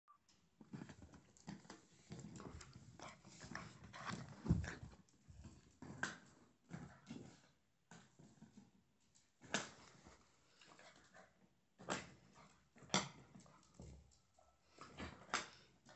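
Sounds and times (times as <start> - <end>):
paws scuffing on tile floor: 1.5 - 7.5.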